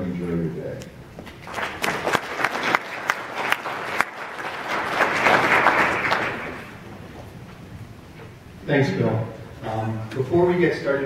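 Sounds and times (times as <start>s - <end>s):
audience applauding: 1.2s - 7.2s.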